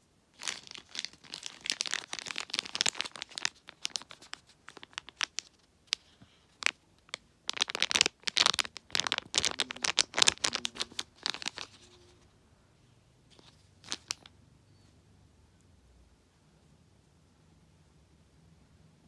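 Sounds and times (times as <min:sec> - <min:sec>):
plastic packet crinkling: 0:00.4 - 0:12.0, 0:13.3 - 0:14.3.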